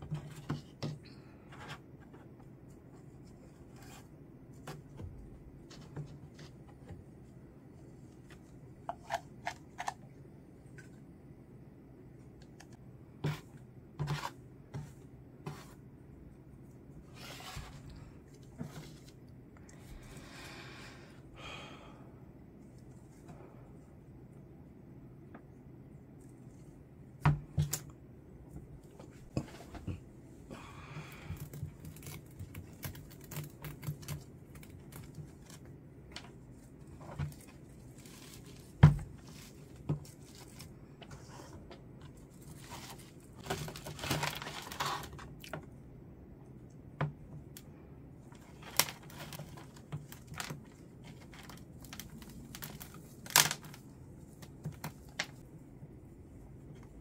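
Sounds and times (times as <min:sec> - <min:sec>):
rustling of potting mix: 0:12.2 - 0:21.1, 0:26.0 - 0:45.6, 0:48.2 - 0:57.0.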